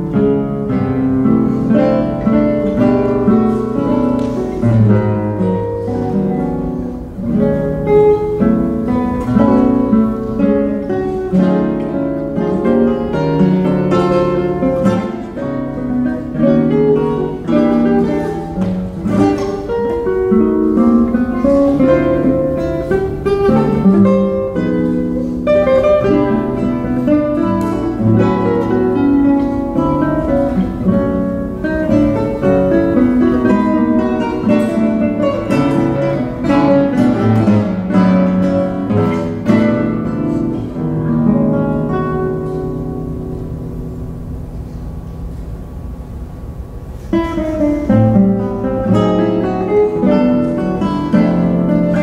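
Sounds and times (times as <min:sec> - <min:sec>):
classical guitars playing: 0:00.0 - 0:52.0.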